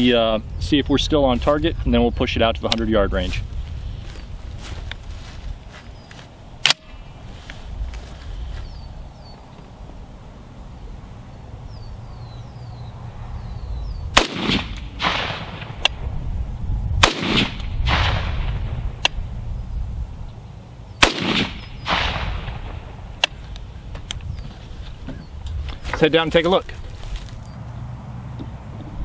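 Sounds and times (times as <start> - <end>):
rifle shots with echo: 14.2 - 16.0, 17.0 - 18.8, 21.0 - 23.4.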